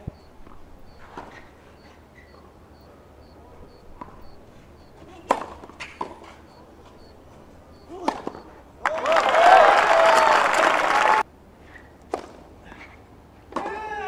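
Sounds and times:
racket striking ball: 4.0 - 6.4, 8.0 - 9.0
crowd applause and cheering: 8.8 - 11.2.

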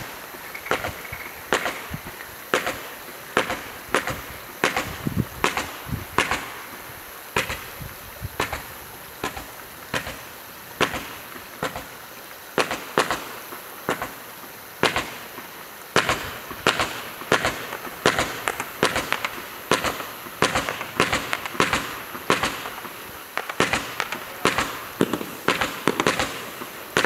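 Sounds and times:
fireworks bangs and cracks: 0.0 - 27.0
steady hiss: 0.0 - 27.0.

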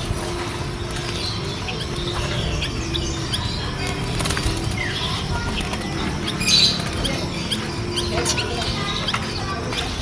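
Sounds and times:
dove chirps: 0.0 - 10.0
doves wing flapping: 3.7 - 7.3.

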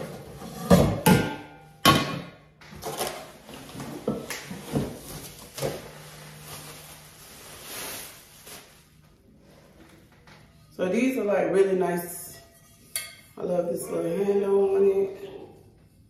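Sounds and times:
bubble wrap crinkling: 3.3 - 9.3.

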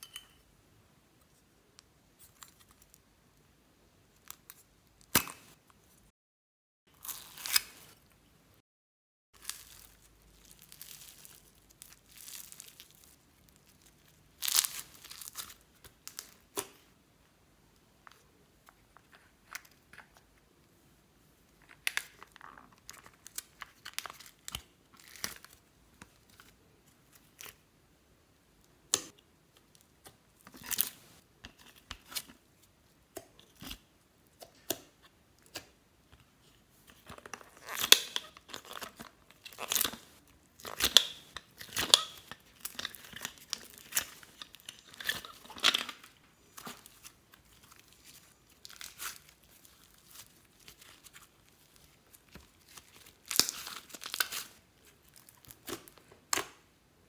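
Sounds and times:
slime squishing and crackling: 9.4 - 16.6, 37.3 - 56.4.

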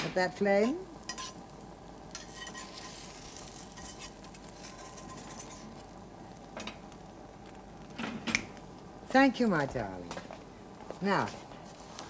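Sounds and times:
omelette sizzling in a pan: 0.2 - 10.0
metal spatula scraping a pan: 0.6 - 1.4, 2.2 - 5.9.

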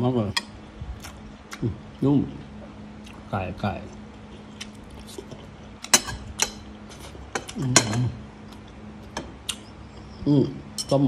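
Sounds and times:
cutlery clicking on plate: 5.9 - 6.7.

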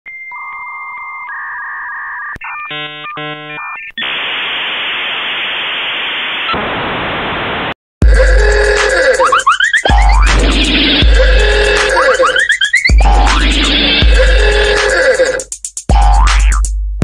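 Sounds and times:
dial-up modem tones: 0.1 - 4.2, 11.2 - 13.0
rapid warbling modem tones: 0.1 - 4.4, 8.0 - 15.5
loud static hiss: 4.0 - 7.8
loud electronic music: 8.0 - 16.7.

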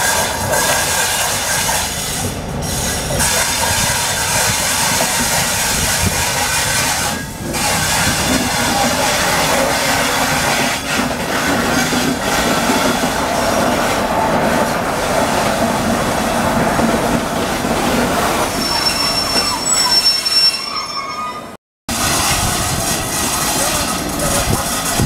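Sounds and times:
train passing: 0.0 - 25.0
high wheel squeal: 18.5 - 25.0
wheels clattering over rail joints: 21.9 - 25.0.

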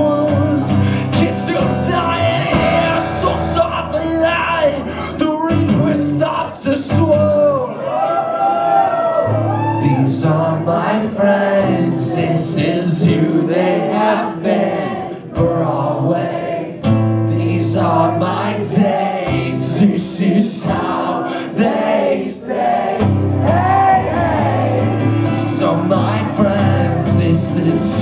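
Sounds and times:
guitar strumming: 0.0 - 7.4, 16.8 - 22.0, 22.9 - 28.0
person singing: 0.0 - 7.7, 9.6 - 16.6, 23.4 - 28.0.

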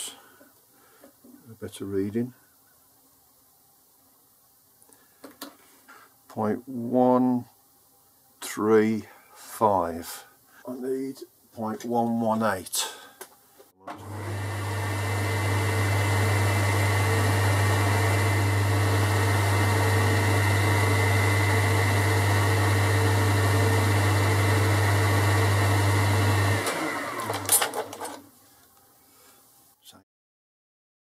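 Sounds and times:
metal lathe humming: 13.9 - 28.1.

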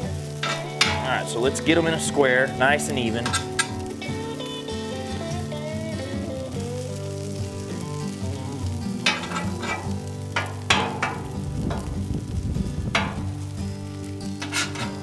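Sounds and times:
potatoes sizzling on a griddle: 0.0 - 15.0
metal spatula scraping griddle: 0.2 - 5.4, 9.0 - 12.0, 12.9 - 15.0.

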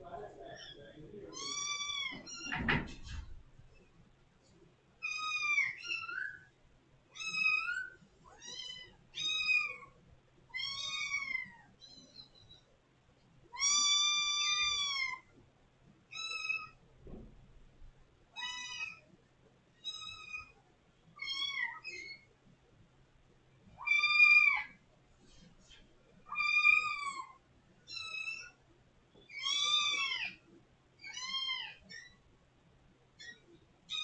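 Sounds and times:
kitten meowing loudly: 1.3 - 2.6, 10.5 - 11.6, 13.6 - 15.2, 18.4 - 19.0, 23.8 - 24.7, 26.3 - 28.5, 29.3 - 30.4.

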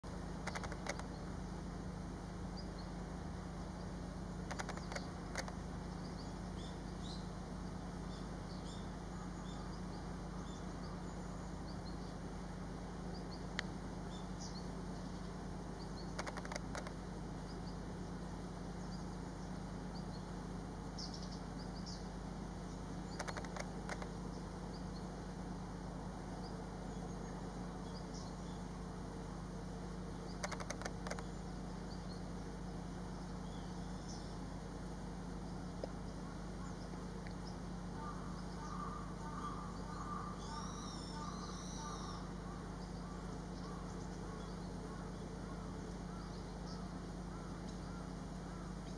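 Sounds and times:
small birds chirping: 0.0 - 48.9
steady low hum: 0.0 - 48.9
sharp clicks: 0.4 - 1.1, 4.4 - 5.6, 16.1 - 17.0, 23.1 - 24.1, 30.4 - 31.3.

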